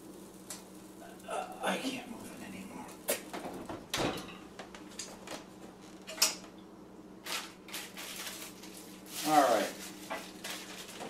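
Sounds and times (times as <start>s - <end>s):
faint steady hum: 0.0s - 11.0s
oven door shutting: 3.1s - 4.5s.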